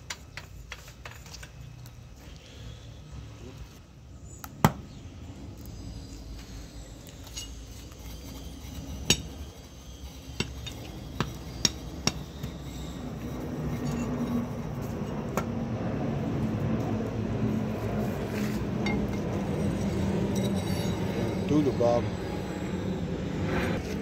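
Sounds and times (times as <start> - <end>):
low engine hum: 1.7 - 24.0
steel tools clinking: 7.0 - 14.8, 18.8 - 22.0.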